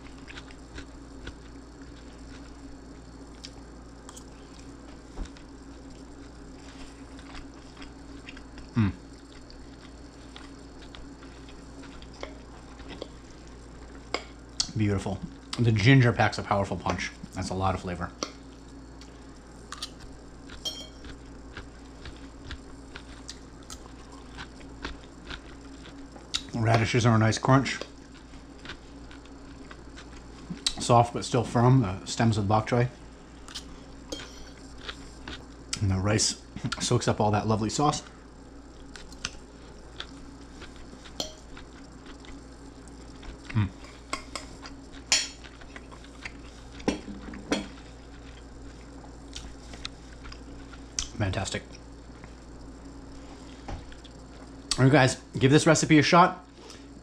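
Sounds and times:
fork clinking on plate: 20.6 - 21.0.

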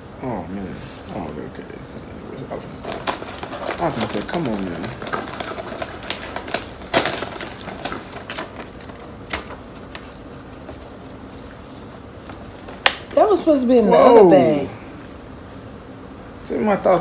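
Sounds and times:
chip bag crinkling: 2.5 - 13.4.

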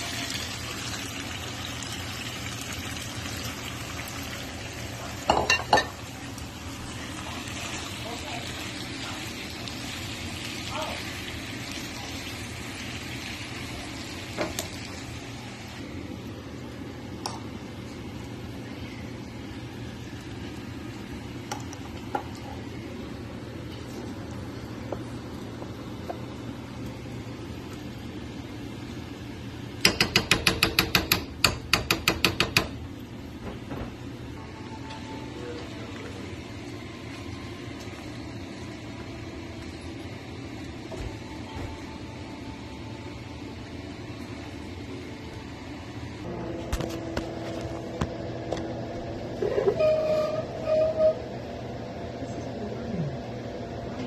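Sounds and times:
fan hum and hiss: 0.0 - 54.0
metal spoon clanking on frying pan: 29.8 - 32.8.

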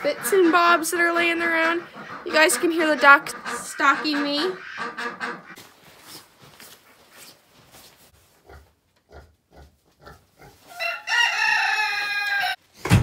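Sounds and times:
footsteps in straw: 5.5 - 8.8, 9.6 - 12.5
rooster crowing: 10.7 - 12.6.

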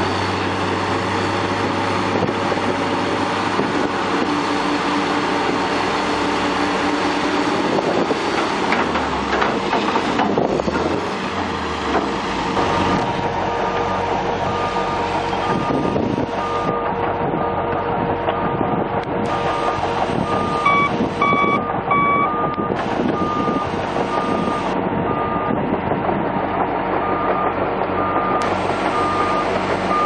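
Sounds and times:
diesel dozer running: 0.0 - 30.0
excavator working: 0.0 - 30.0
steel tracks clanking and squealing: 8.3 - 25.5
backup alarm beeping: 14.0 - 17.6, 19.3 - 25.6.

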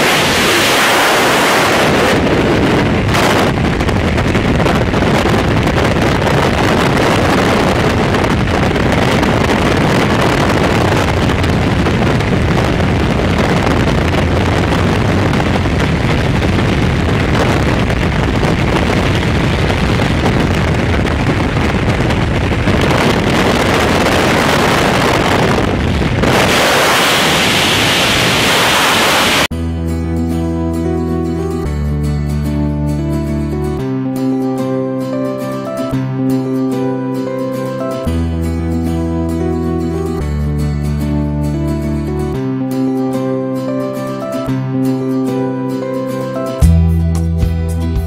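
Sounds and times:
acoustic guitar music: 0.0 - 27.0, 29.5 - 48.0
wind roaring over microphone: 0.0 - 29.6.

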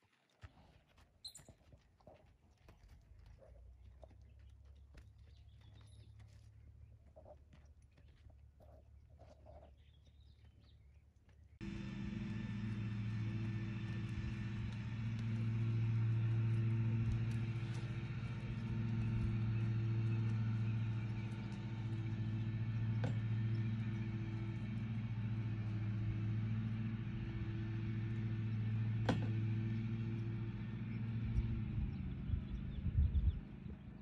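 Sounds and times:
low bumps: 11.6 - 33.9
engine humming: 11.6 - 34.0.

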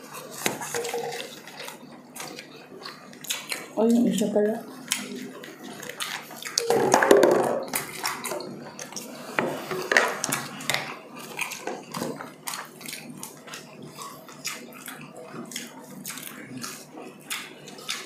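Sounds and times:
dishes and utensils clinking: 0.4 - 1.8.

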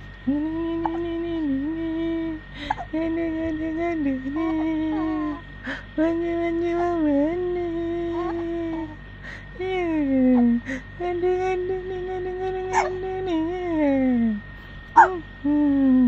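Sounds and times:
woman humming slow tune: 0.0 - 16.0
breaths: 2.5 - 2.9, 5.6 - 6.0, 9.2 - 9.6, 10.6 - 10.9.

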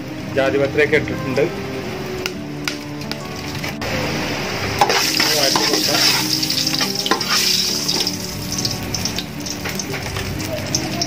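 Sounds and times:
spices sizzling in oil: 2.8 - 11.0
spoon scraping metal pot: 4.8 - 8.7.

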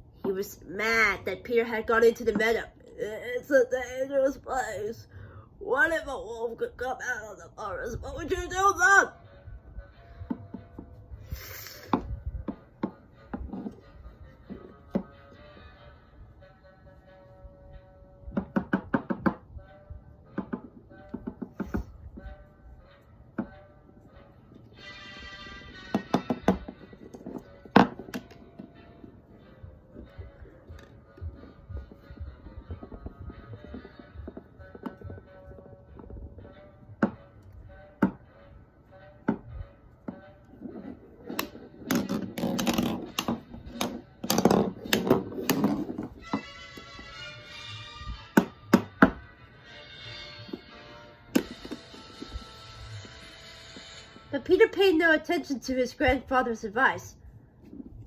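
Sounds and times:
plastic toy knocking on wooden floor: 18.3 - 19.4, 20.4 - 21.9, 25.9 - 28.7, 48.4 - 49.2, 51.3 - 52.4
quiet orchestral music: 22.0 - 41.8, 46.1 - 55.8.

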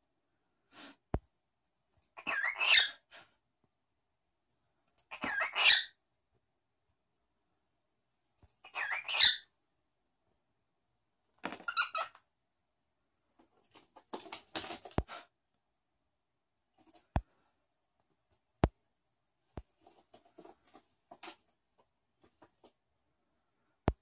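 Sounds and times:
cockatiel squeaky call: 2.2 - 3.0, 5.1 - 6.0, 8.6 - 9.5, 11.6 - 12.2.

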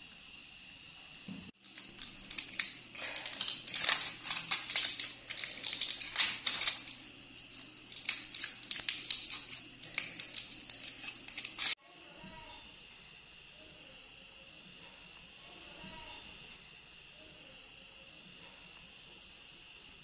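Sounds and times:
faint steady hum: 0.0 - 20.0
crinkling and rustling: 1.6 - 11.8.

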